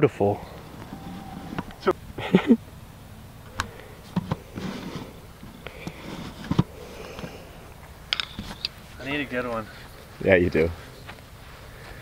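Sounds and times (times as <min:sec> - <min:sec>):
quiet outdoor background: 0:00.0 - 0:12.0
light taps of golf ball and tee: 0:05.4 - 0:08.8.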